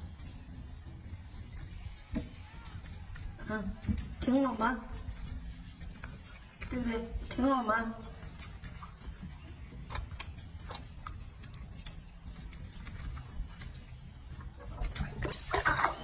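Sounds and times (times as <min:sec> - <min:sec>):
wet clicks and splashes: 0:08.1 - 0:16.0.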